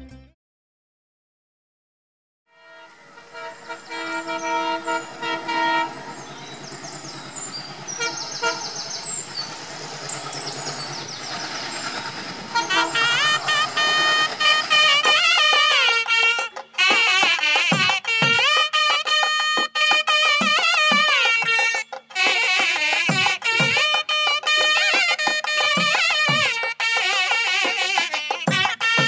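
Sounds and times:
music: 0.0s - 0.4s, 12.6s - 29.0s
train horn chord: 2.5s - 29.0s
passing train rumble: 2.7s - 16.9s.

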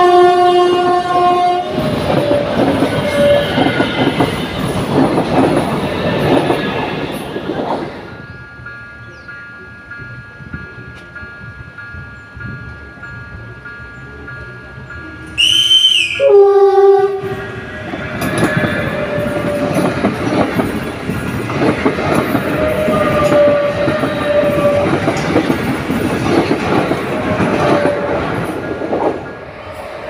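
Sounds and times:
two-note train horn: 0.0s - 3.8s, 15.3s - 19.9s, 22.6s - 25.0s
train wheels rushing on rail: 0.0s - 30.0s
wheels clicking over rail joints: 17.0s - 30.0s.

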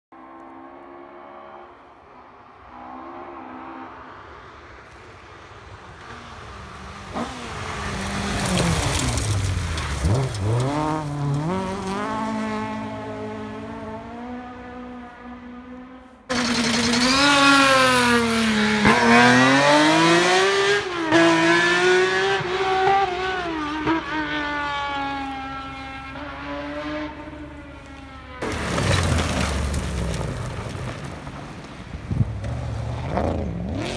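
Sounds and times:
rally car engines revving: 6.0s - 31.2s, 32.0s - 33.9s.

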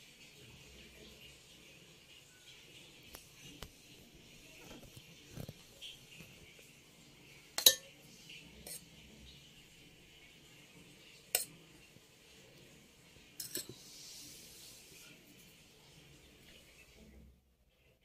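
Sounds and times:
spoon clinking on steel bowls: 7.6s - 8.0s, 11.3s - 11.5s, 13.4s - 13.8s
faint hiss: 13.3s - 17.0s.

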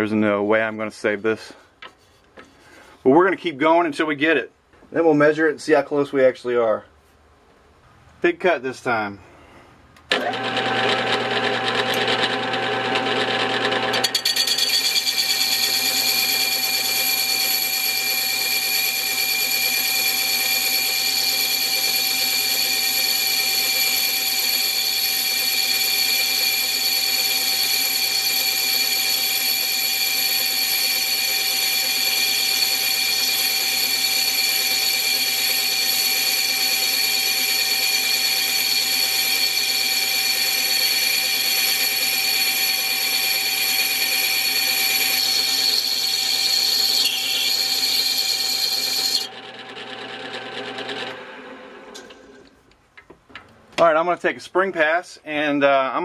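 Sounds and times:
lathe cutting metal with whine: 10.1s - 52.0s.

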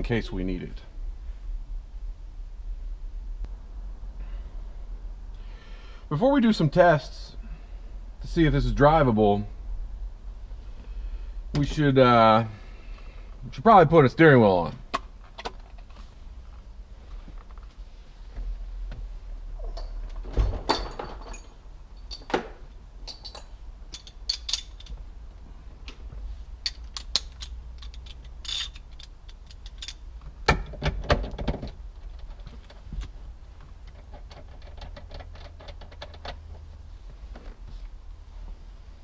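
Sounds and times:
metal tools clinking: 19.6s - 25.0s, 26.6s - 30.2s
ratchet wrench clicking: 26.7s - 30.0s.

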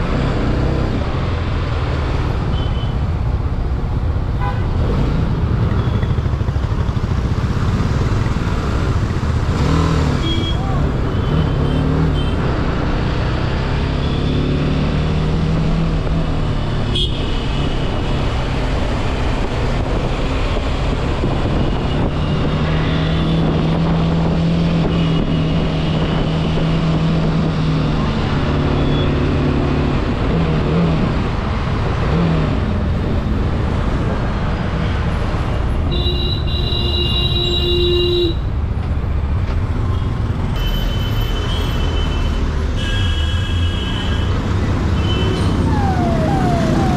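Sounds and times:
wind and road noise: 0.0s - 46.9s
motorcycle engine revving: 6.2s - 16.8s
vehicle horn: 16.9s - 17.4s.

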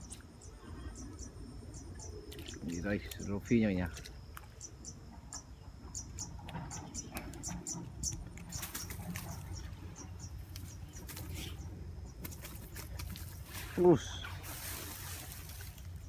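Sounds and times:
fish flapping on grass and plastic: 7.2s - 11.6s, 12.2s - 16.0s.

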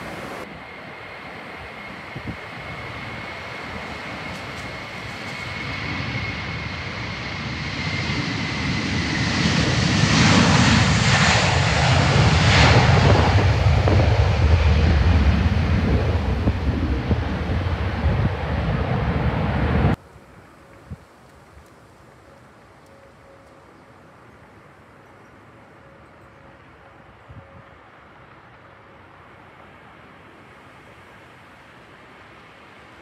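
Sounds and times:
jet engines roaring: 0.0s - 20.0s.

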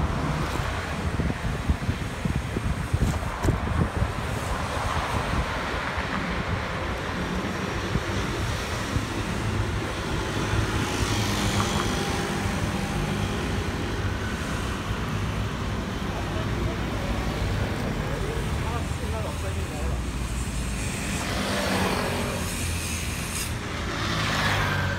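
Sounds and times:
wind buffeting microphone: 0.0s - 16.0s
traffic rumble: 0.0s - 24.9s
passing vehicle engine hum: 19.8s - 24.9s.

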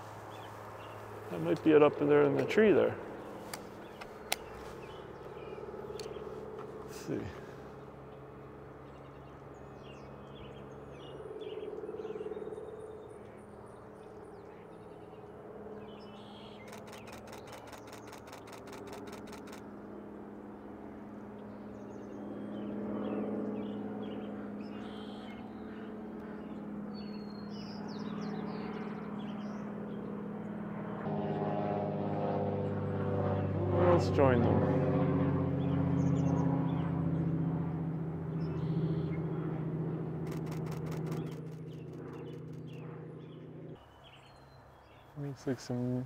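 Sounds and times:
songbirds chirping: 0.0s - 30.6s, 38.3s - 46.0s
distant traffic hum: 0.0s - 46.0s
camera shutter burst: 16.6s - 19.6s, 40.3s - 42.2s.

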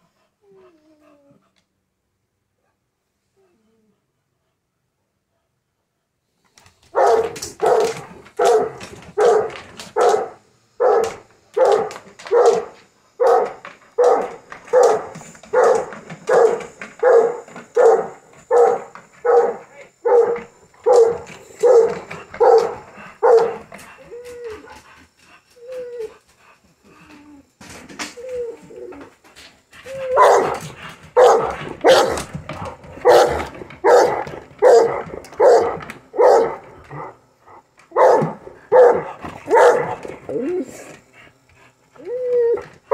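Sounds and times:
dog whining: 0.4s - 1.5s, 10.1s - 24.9s, 25.5s - 37.1s, 38.8s - 41.0s, 41.9s - 42.9s
dog barking: 7.0s - 23.6s, 30.2s - 30.6s, 31.2s - 32.3s, 33.0s - 37.1s, 37.9s - 40.0s.

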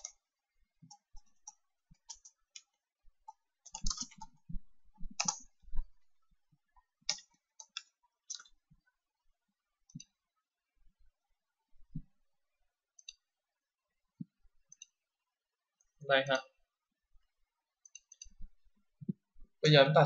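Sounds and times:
computer keyboard typing: 0.8s - 5.6s, 7.0s - 8.5s
mouse clicks: 0.8s - 5.9s, 7.0s - 8.6s, 13.0s - 13.2s, 17.8s - 19.2s.

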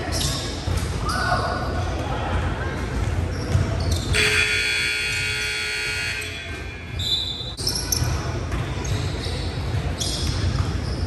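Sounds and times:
scoreboard buzzer: 4.1s - 6.7s.

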